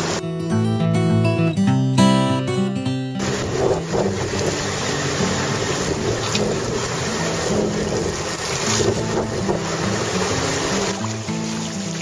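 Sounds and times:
sea water rushing and hissing: 3.2s - 12.0s
wind: 3.2s - 12.0s.

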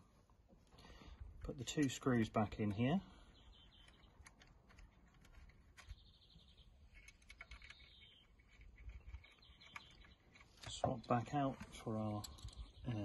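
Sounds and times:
faint bird chirps: 2.7s - 11.0s, 11.7s - 13.0s.

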